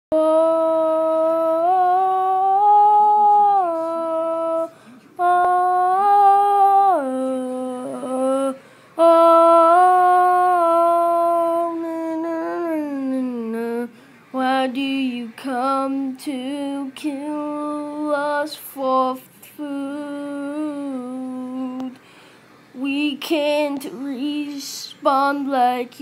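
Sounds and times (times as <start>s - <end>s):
person humming a slow tune: 0.2s - 13.9s.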